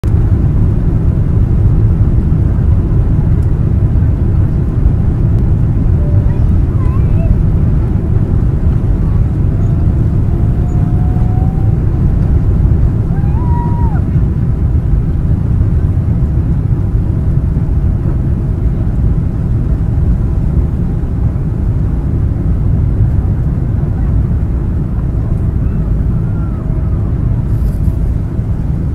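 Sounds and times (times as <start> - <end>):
jet engines rumbling: 0.0 - 28.9
airflow: 4.0 - 16.2.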